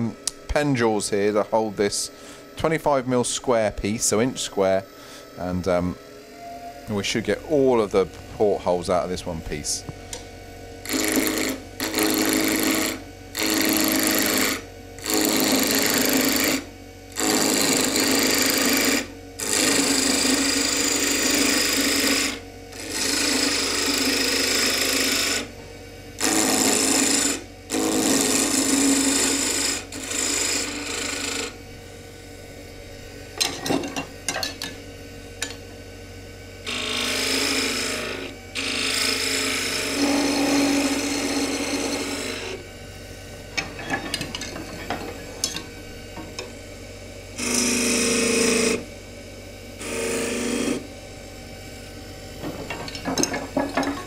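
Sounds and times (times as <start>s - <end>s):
lathe running: 0.0s - 25.6s, 26.2s - 54.0s
tools cutting wood on lathe: 10.8s - 25.5s, 26.2s - 31.6s, 36.6s - 42.6s, 47.4s - 48.8s, 49.8s - 50.9s.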